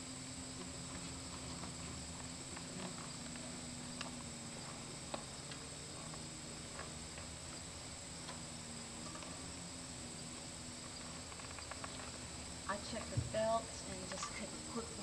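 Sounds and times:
steady high hiss: 0.0 - 15.0
steady low hum: 0.0 - 15.0.

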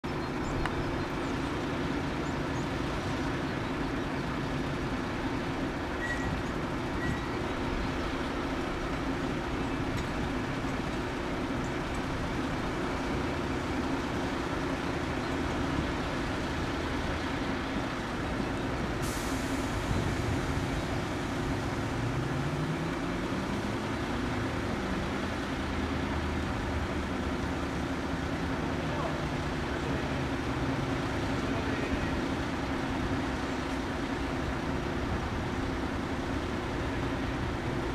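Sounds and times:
propeller plane engine droning: 0.0 - 37.9.

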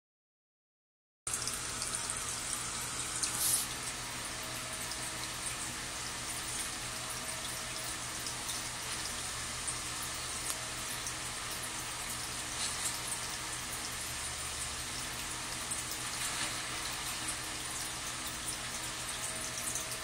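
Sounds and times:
aquarium filter bubbling: 1.3 - 20.0
rush of water: 12.0 - 20.0.

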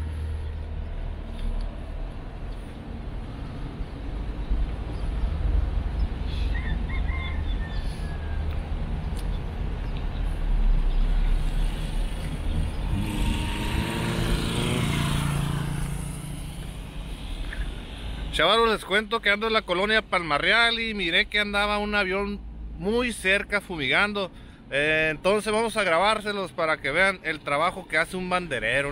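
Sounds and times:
car passing by: 11.0 - 18.3.

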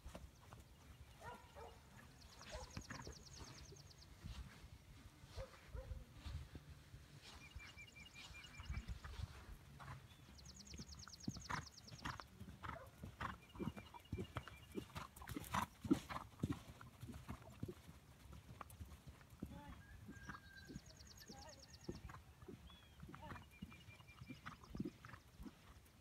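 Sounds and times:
horse hoofbeats on sand: 8.4 - 10.7.

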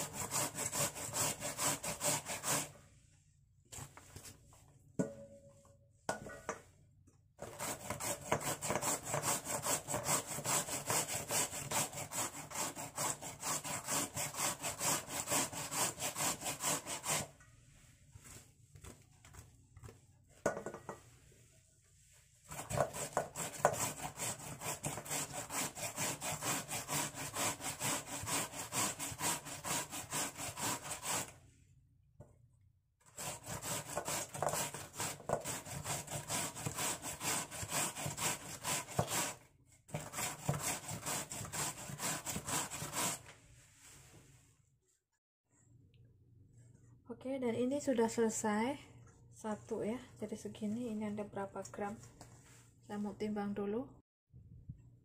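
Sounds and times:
radish grated on a grater: 0.0 - 2.8, 7.4 - 17.4, 22.4 - 31.3, 33.1 - 43.3.

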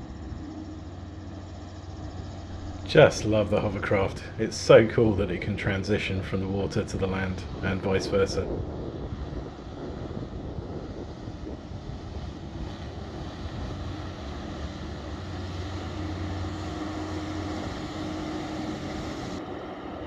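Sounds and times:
steady higher tone: 0.0 - 8.4, 12.9 - 20.0
hovercraft engines running: 0.0 - 20.0
low hum: 0.0 - 20.0.

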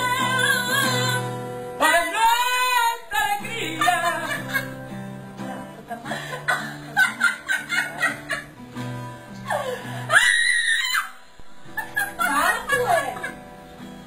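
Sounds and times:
acoustic guitar strumming: 0.0 - 14.0
hysterical laughter: 3.6 - 8.5, 11.7 - 13.4
high-pitched shriek of laughter: 9.5 - 13.4.

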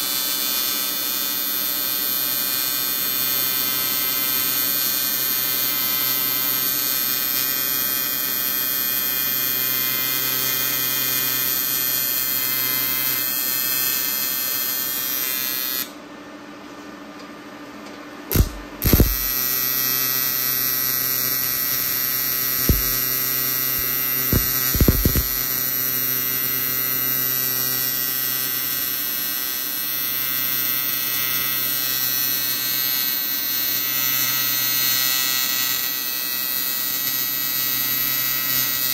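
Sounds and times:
welding arc buzzing: 0.0 - 16.0, 18.3 - 38.9
short knocks: 22.6 - 23.0.

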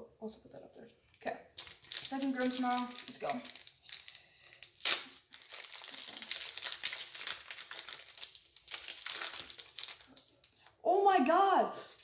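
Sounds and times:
foil wrapper crinkling: 1.6 - 10.7.

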